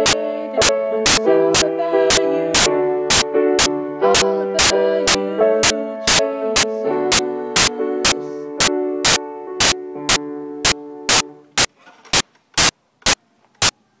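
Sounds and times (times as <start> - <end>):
piano chord: 0.0 - 11.6
loud sharp clicks: 7.6 - 13.8.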